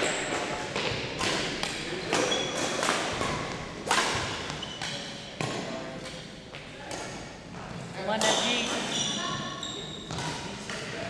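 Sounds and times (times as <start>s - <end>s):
rackets striking shuttlecock: 0.0s - 6.3s, 8.2s - 8.9s, 10.1s - 11.0s
sneakers squeaking on floor: 0.0s - 11.0s.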